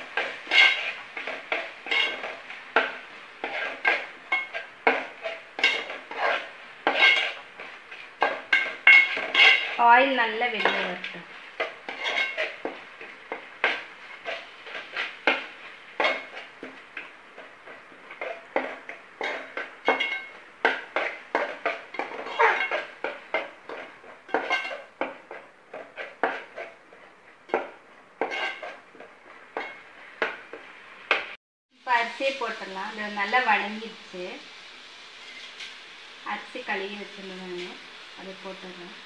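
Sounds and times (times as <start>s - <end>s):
spoon scraping metal pot: 0.2s - 9.8s, 10.5s - 17.1s, 18.1s - 26.8s, 27.5s - 28.8s.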